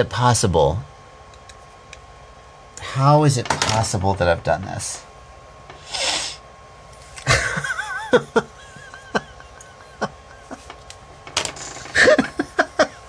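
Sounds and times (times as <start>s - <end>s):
man laughing in huffs: 7.2s - 10.7s, 11.9s - 13.0s.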